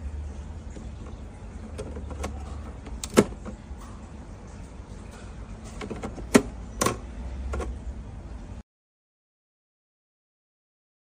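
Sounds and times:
steady low hum: 0.0s - 8.6s.

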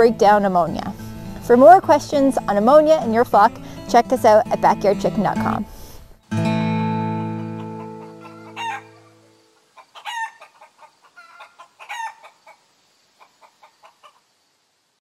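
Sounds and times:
acoustic guitar chord: 0.2s - 8.3s
chickens clucking: 7.4s - 14.3s.

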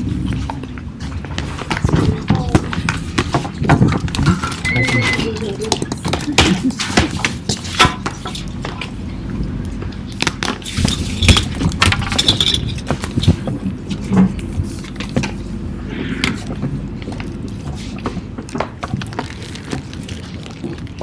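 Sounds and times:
clicks and clinks of objects: 9.7s - 15.4s.

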